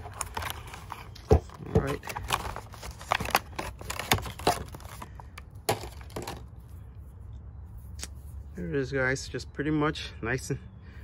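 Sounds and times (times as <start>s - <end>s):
plastic packaging crackling: 0.0s - 6.5s.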